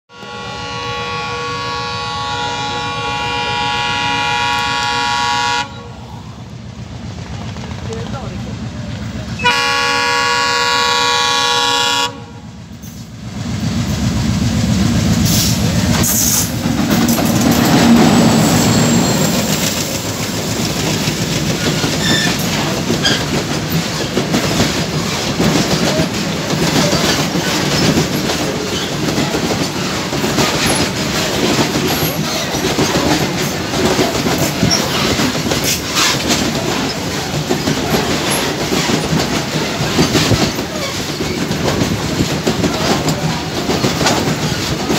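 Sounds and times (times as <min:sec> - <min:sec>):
locomotive horn: 0:00.1 - 0:05.9, 0:09.4 - 0:12.4
freight train wagons rumbling past: 0:00.1 - 0:44.9
wheels clicking over rail joints: 0:12.6 - 0:44.9.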